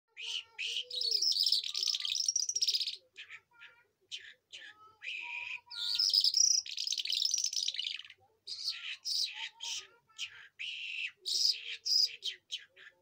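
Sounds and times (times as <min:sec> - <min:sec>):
lark singing trills: 0:00.4 - 0:03.0, 0:05.2 - 0:08.0.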